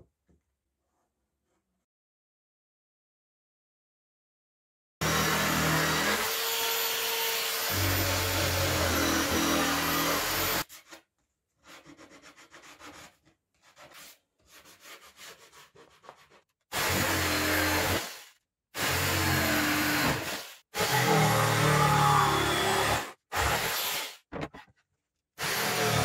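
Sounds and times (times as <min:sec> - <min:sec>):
electric jigsaw cutting wood: 0:05.0 - 0:10.7, 0:16.7 - 0:24.2, 0:25.4 - 0:26.0
hand sanding wood: 0:11.6 - 0:16.4.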